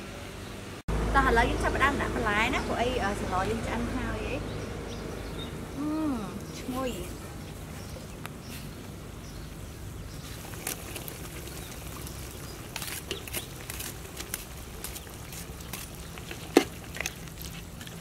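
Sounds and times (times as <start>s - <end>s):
stew bubbling in a pot: 7.4s - 18.0s.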